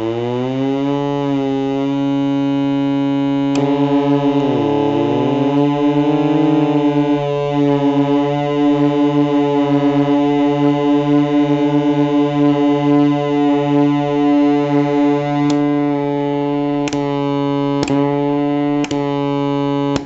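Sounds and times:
synthesizer droning chord: 0:00.0 - 0:20.0
toggle switch clicks: 0:03.5 - 0:03.8, 0:15.4 - 0:15.8, 0:16.8 - 0:17.2, 0:17.8 - 0:18.2, 0:18.8 - 0:19.1.

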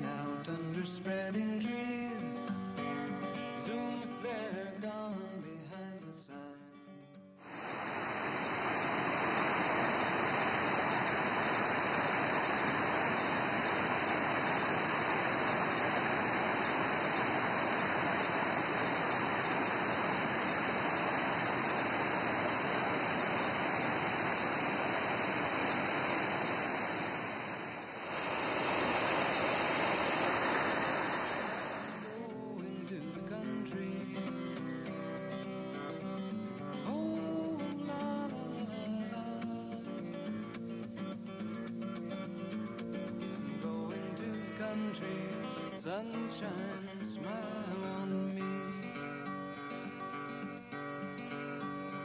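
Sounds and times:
waterfall and river rushing: 0:07.5 - 0:32.3.

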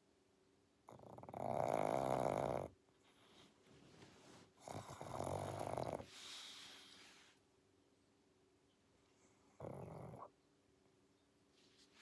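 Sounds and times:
dog snoring: 0:00.9 - 0:02.8, 0:04.6 - 0:07.0, 0:09.5 - 0:10.3
dog breathing: 0:04.6 - 0:07.4.

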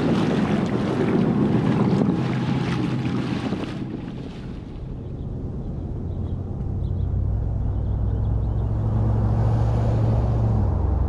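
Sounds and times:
water splashing and rushing: 0:00.0 - 0:05.5
wind buffeting microphone: 0:00.0 - 0:11.0.

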